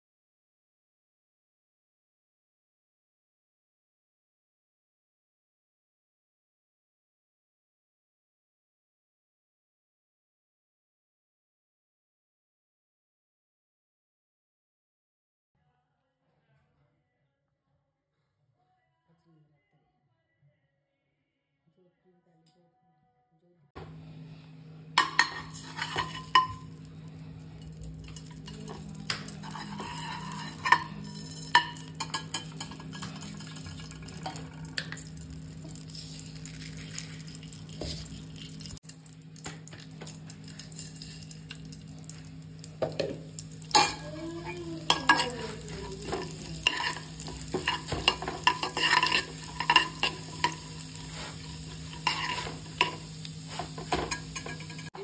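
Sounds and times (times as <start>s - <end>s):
steady low hum: 23.8s - 54.9s
spoon clinking and scraping metal pan: 25.0s - 26.8s, 27.6s - 38.7s, 43.7s - 55.0s
seeds frying in ghee: 25.0s - 55.0s.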